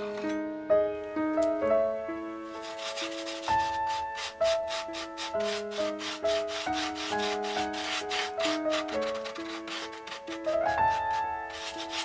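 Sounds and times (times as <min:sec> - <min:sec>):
background piano music: 0:00.0 - 0:12.0
paintbrush scrubbing on board: 0:02.5 - 0:12.0.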